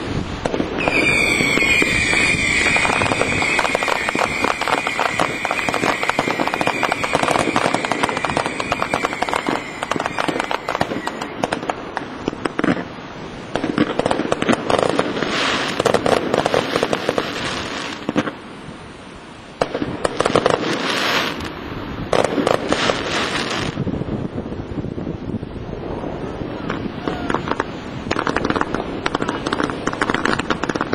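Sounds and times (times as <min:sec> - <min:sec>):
fireworks crackling: 0:00.0 - 0:18.8, 0:19.6 - 0:24.5, 0:25.6 - 0:30.9
firework shells bursting with bangs: 0:00.4 - 0:12.9, 0:26.7 - 0:30.9.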